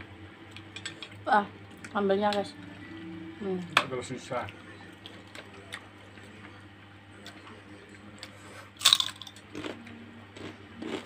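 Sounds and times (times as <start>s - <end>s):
cracker crunch: 8.2s - 9.8s.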